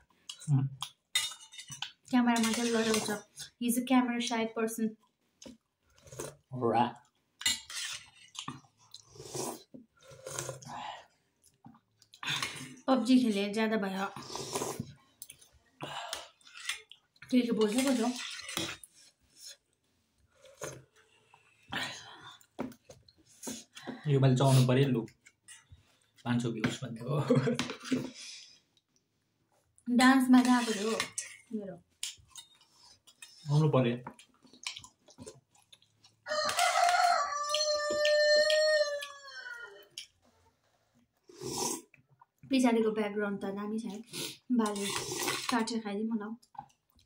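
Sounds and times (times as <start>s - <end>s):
people chewing: 0.0s - 3.6s, 5.0s - 12.9s, 14.1s - 26.3s, 27.3s - 42.5s, 44.0s - 45.6s, 46.4s - 47.0s
spoons clinking on plates: 1.2s - 3.1s
rooster crowing: 36.3s - 39.9s.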